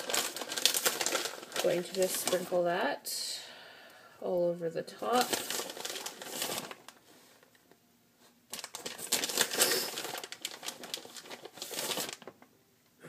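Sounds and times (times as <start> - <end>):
plastic bag crinkling: 0.0 - 2.7, 5.0 - 7.6, 8.5 - 12.5.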